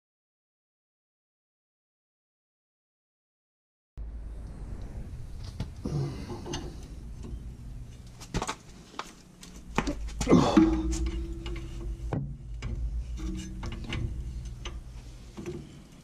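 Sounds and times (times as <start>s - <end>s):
steady hum: 4.0s - 16.0s.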